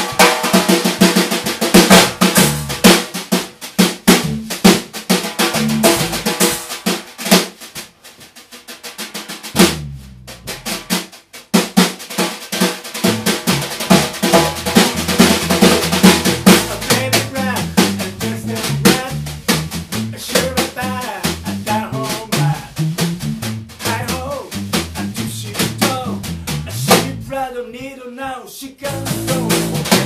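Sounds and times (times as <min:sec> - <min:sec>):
fast snare strokes: 0:00.0 - 0:27.2, 0:28.9 - 0:30.0
drum kit playing: 0:00.0 - 0:27.5, 0:28.8 - 0:30.0
electric bass: 0:01.4 - 0:03.0, 0:04.1 - 0:06.7, 0:09.5 - 0:11.0, 0:13.0 - 0:27.9, 0:28.9 - 0:30.0.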